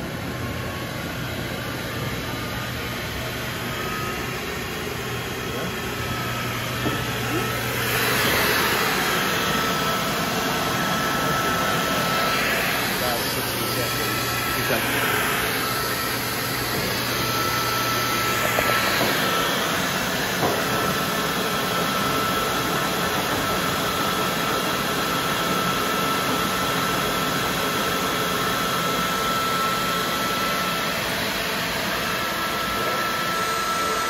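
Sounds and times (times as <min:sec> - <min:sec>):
blower air rush: 0:00.0 - 0:25.2
thin steady whine: 0:00.0 - 0:34.0.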